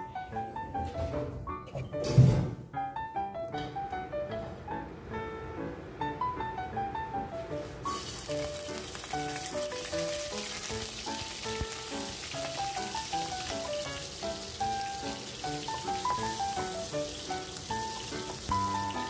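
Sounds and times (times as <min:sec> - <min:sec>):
light piano music: 0:00.0 - 0:19.0
shrimp sizzling in hot oil: 0:07.9 - 0:19.0.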